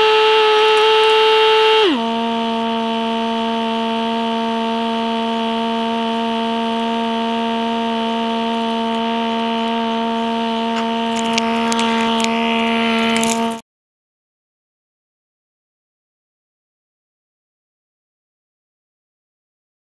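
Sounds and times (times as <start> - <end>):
low synthesizer note held: 0.0 - 13.6.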